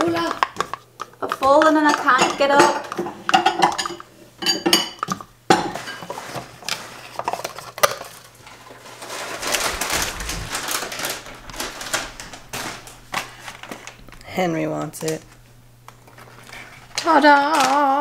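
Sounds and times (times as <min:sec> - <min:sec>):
ceramic dishes clinking: 0:01.9 - 0:06.1
rustling and handling noise: 0:05.7 - 0:18.0.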